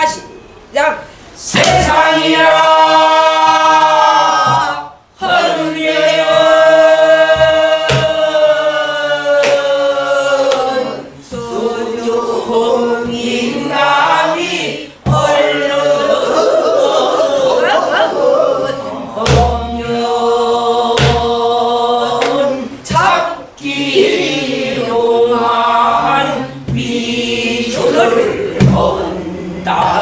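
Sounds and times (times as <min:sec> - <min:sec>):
group singing in unison: 0:01.2 - 0:30.0
barrel drum strokes: 0:06.2 - 0:08.4, 0:27.8 - 0:29.1.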